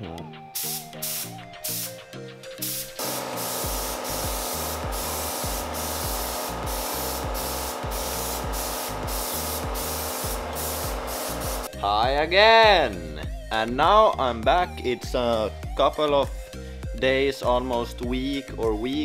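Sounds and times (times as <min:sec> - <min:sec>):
spray gun hissing: 0:00.6 - 0:02.0, 0:02.6 - 0:11.7.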